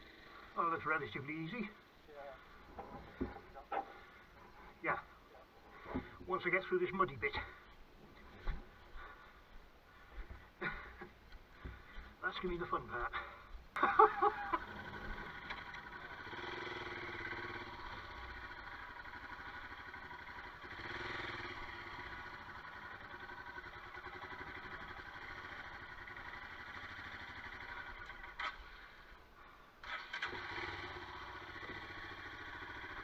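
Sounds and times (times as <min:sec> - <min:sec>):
motorcycle engine running: 0:13.0 - 0:29.2, 0:29.8 - 0:33.0.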